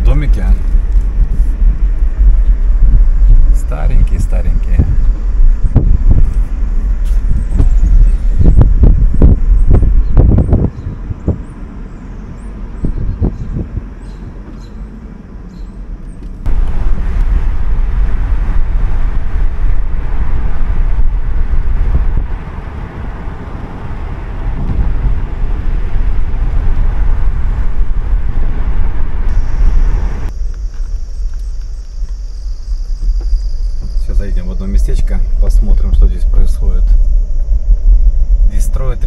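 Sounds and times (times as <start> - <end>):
car road noise: 0.0 - 39.0
wind buffeting microphone: 0.0 - 39.0
high insect drone: 29.3 - 39.0.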